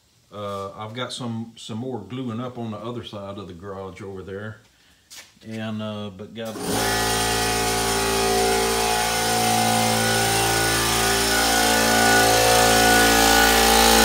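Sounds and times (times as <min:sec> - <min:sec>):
air compressor running: 0:06.5 - 0:14.0.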